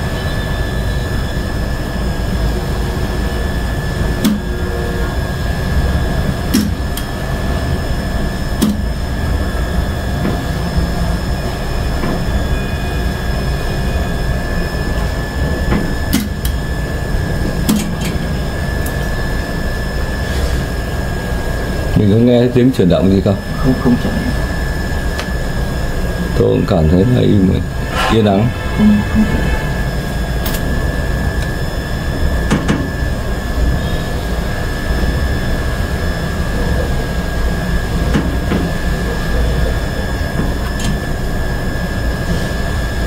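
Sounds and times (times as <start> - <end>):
low drone with high whine: 0.0 - 43.0.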